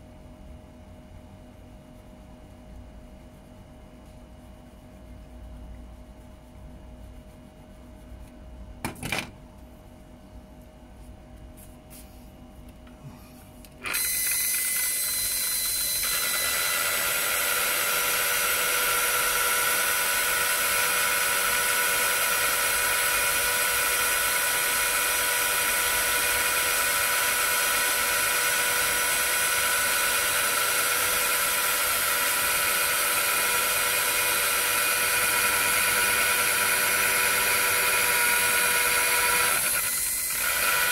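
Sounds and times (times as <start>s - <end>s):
electric polisher motor whine: 13.8s - 40.9s.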